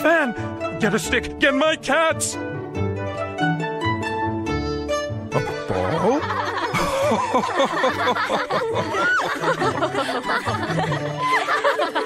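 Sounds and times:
light background music: 0.0 - 12.0
people laughing: 5.4 - 12.0.

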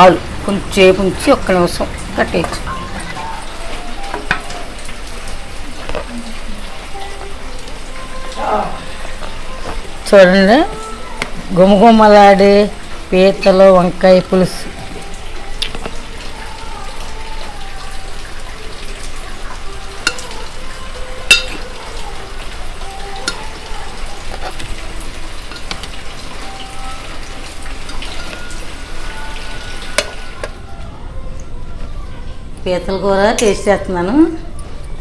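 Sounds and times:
curry simmering and sizzling: 0.0 - 30.9.

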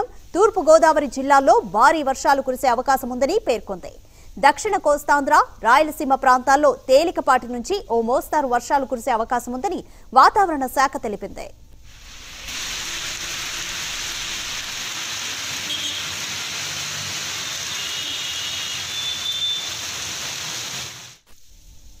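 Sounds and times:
heavy rain pouring: 11.9 - 21.3.

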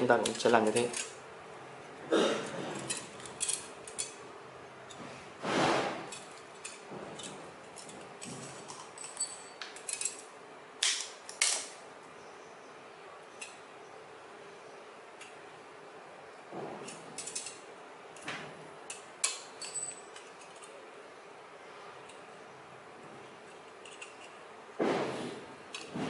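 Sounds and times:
metal strips clicking and crinkling: 0.0 - 1.2, 2.4 - 4.2, 6.1 - 11.8, 16.8 - 20.8, 23.4 - 24.5, 25.7 - 26.0.

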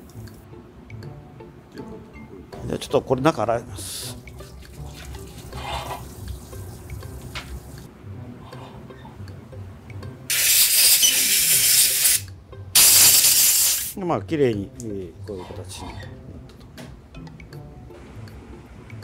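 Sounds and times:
sink tap running: 4.4 - 7.9
compressed air hissing: 10.3 - 14.0.

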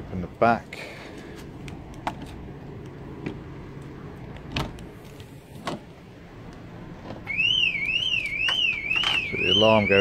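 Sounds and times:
vehicle alarm siren: 7.2 - 10.0.

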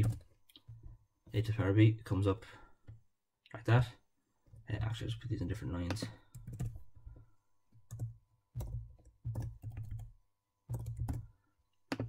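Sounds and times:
typing on computer keyboard: 6.3 - 6.8, 7.9 - 11.3.

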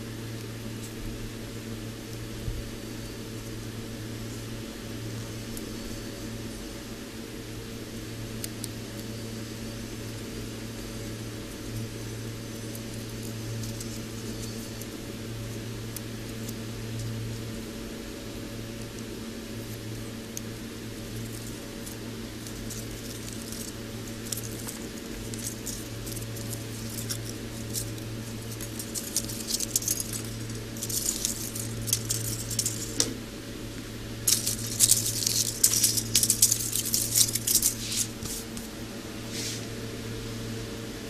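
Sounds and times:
steady low hum: 0.0 - 41.0
foil and paper crackling: 11.8 - 17.5, 18.9 - 33.2, 34.2 - 38.8.

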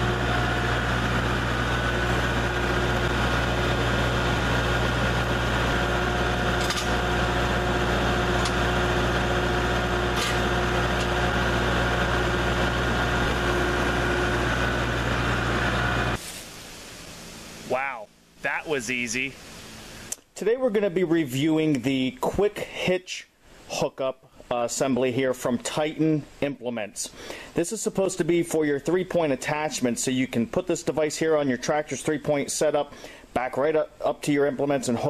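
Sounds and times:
tractor diesel engine running: 0.0 - 16.2.

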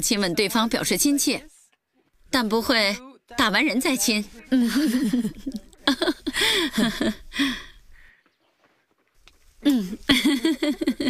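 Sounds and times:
women talking: 0.0 - 1.6, 2.4 - 7.6, 9.7 - 11.0
women laughing: 4.5 - 7.6, 9.7 - 11.0.

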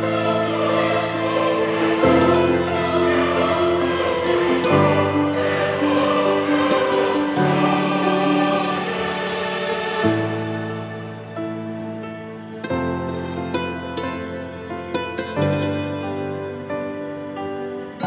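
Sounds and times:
choir-like voices singing: 0.0 - 12.6
slow sustained chords: 0.0 - 18.0.

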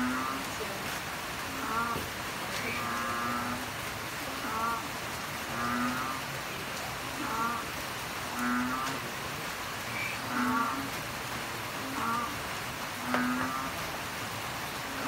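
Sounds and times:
steady hiss: 0.0 - 15.0
low croaking animal calls: 1.5 - 3.7, 7.2 - 9.1, 9.8 - 11.0, 11.8 - 13.8.

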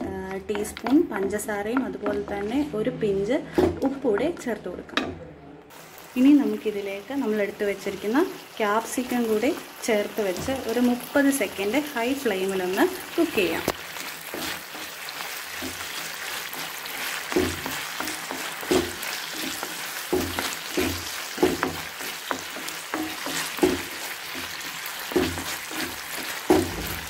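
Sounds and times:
food sizzling in pan: 5.7 - 27.0
wooden spatula scraping pan: 13.9 - 27.0.

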